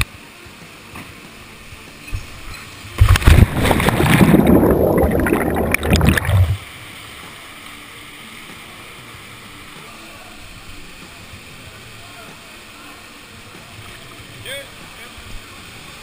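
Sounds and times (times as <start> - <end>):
flowing water: 1.4 - 16.0
rushing water and splashing: 2.8 - 7.6
plunge into pool: 3.0 - 6.6.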